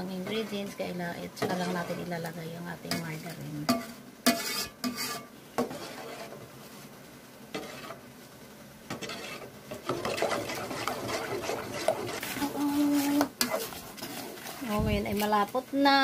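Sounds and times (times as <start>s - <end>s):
utensil scraping a pot: 1.4s - 2.2s, 3.7s - 6.5s, 7.5s - 8.0s, 8.9s - 15.5s.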